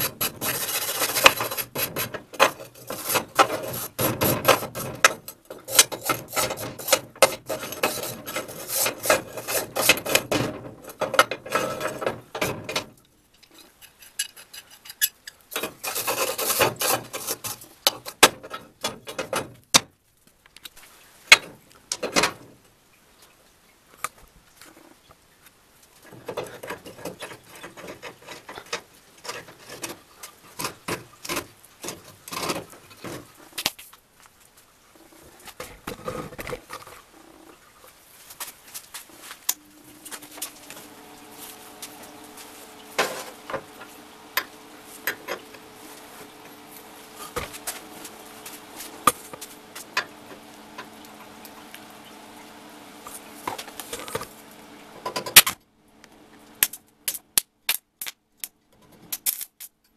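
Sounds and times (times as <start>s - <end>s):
metal tool scraping rusty iron: 0.0s - 19.4s, 39.5s - 50.4s.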